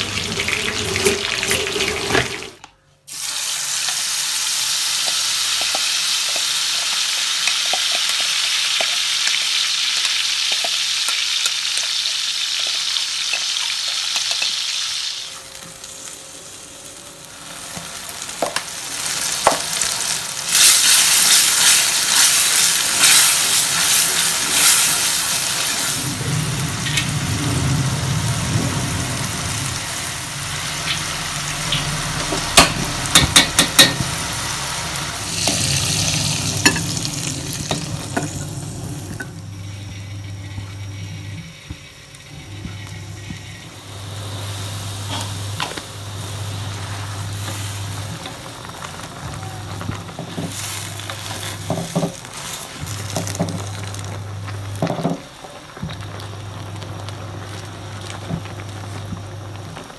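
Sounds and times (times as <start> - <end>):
chilies sizzling in hot oil: 0.0 - 59.9
low rumble: 25.8 - 33.1.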